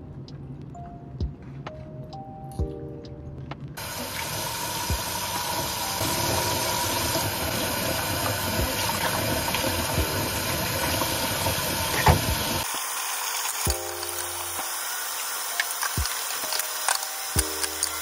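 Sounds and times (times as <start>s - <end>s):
running water: 3.8s - 18.0s.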